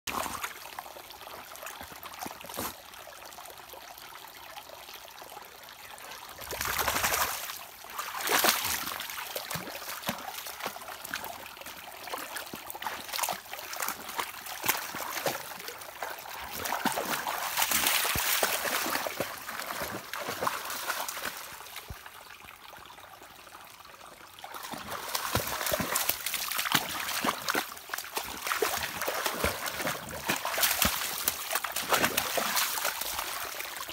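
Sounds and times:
stream trickling over rocks: 0.1 - 33.9
dog splashing through water: 6.5 - 21.4, 24.6 - 33.9.

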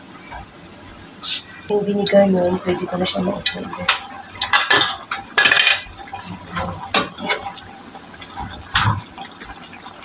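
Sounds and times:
sauce bubbling and popping: 3.4 - 10.0.

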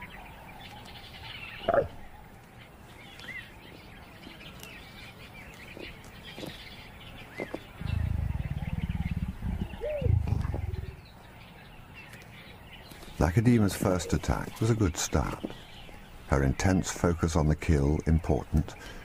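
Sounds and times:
leopard cub growling: 7.8 - 11.1.

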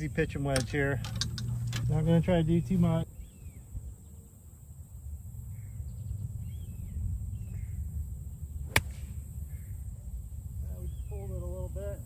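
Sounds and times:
golf club striking ball: 8.6 - 9.4.

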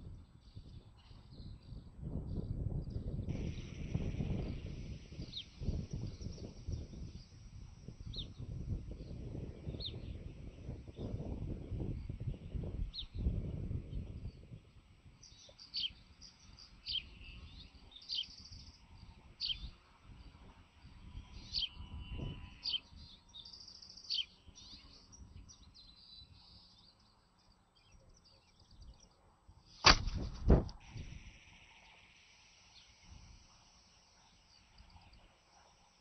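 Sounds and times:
high downward bird chirps: 15.2 - 20.4, 21.2 - 29.2.

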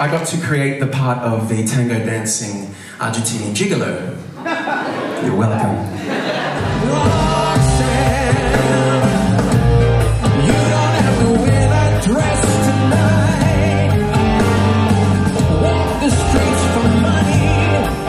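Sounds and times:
live rock band playing: 6.4 - 18.0
man singing into microphone: 6.7 - 9.3, 10.3 - 18.0.

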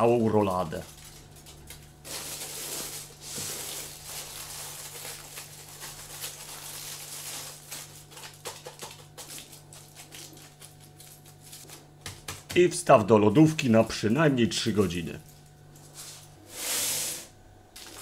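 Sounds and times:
aluminium foil crinkling: 0.0 - 12.5, 17.8 - 18.0.

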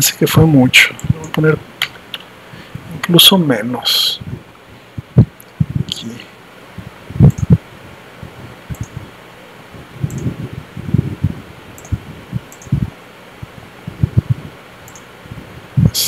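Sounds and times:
faint steady hiss: 0.0 - 16.0
soft low thumps: 4.2 - 6.0, 6.8 - 14.6
computer mouse clicking: 7.2 - 7.5, 8.7 - 9.0, 10.0 - 10.3, 11.8 - 12.8, 14.8 - 15.1.

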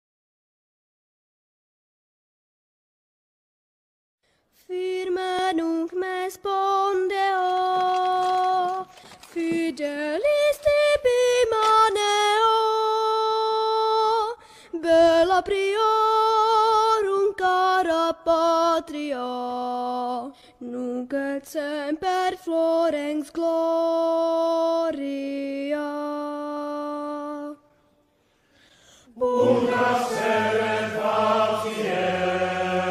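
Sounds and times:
person singing with vibrato: 29.0 - 32.9.

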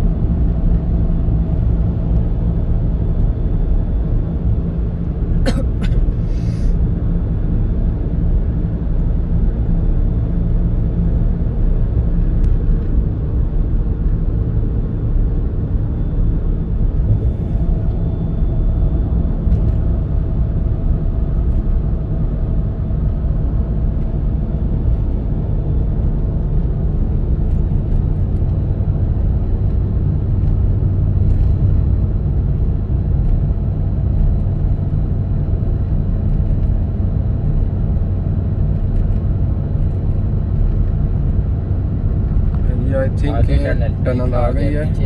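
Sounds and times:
car engine hum: 0.0 - 45.0
tyres rumbling on road: 0.0 - 45.0.

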